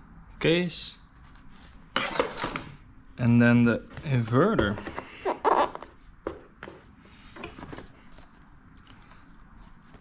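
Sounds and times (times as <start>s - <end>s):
paper and cardboard rustling: 7.6s - 10.0s.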